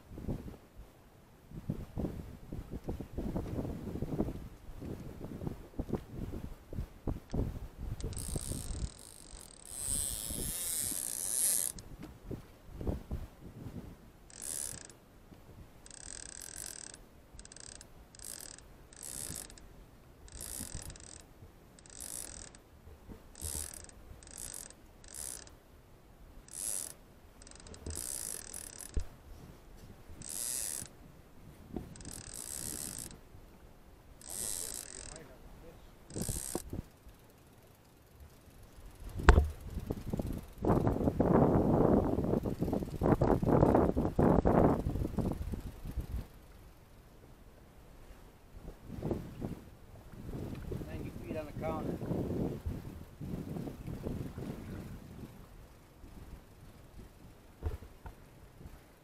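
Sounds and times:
fishing reel winding: 0:08.0 - 0:11.9, 0:14.3 - 0:15.0, 0:15.8 - 0:22.6, 0:23.3 - 0:25.6, 0:26.4 - 0:29.1, 0:30.2 - 0:31.0, 0:31.9 - 0:33.2, 0:34.2 - 0:35.4, 0:36.0 - 0:41.2, 0:42.2 - 0:47.0.

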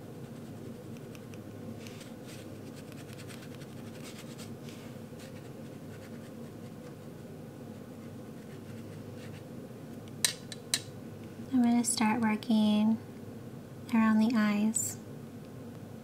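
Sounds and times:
brush strokes on paper: 0:01.8 - 0:06.8.

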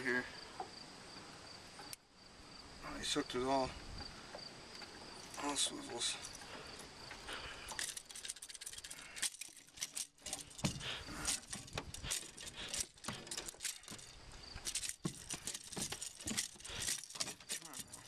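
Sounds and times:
pliers clicking on metal hooks: 0:07.6 - 0:18.0.

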